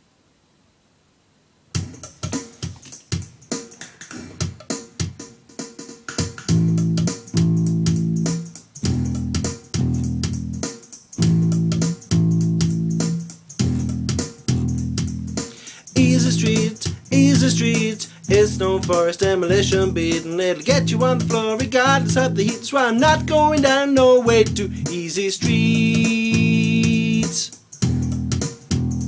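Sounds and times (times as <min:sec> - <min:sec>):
backing track with steady beat: 0:01.7 - 0:29.0
electric bass guitar: 0:06.5 - 0:15.4, 0:16.0 - 0:29.0.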